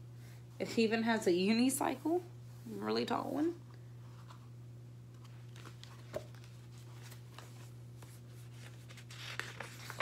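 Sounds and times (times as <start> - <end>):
book pages rustling: 4.1 - 4.5, 5.1 - 10.0.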